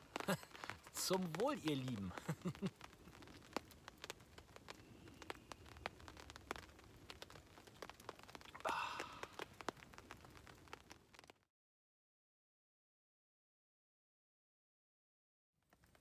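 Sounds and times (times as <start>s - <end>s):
rain drops ticking on a tarp: 0.0s - 11.5s, 15.6s - 16.0s
man sighing: 8.5s - 9.4s.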